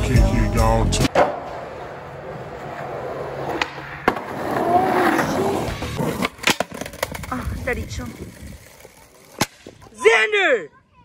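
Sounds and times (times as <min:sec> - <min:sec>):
music: 0:00.0 - 0:01.1, 0:05.2 - 0:06.0
skateboard wheels rolling on concrete: 0:00.0 - 0:10.2
skateboard clacks: 0:02.7 - 0:04.9.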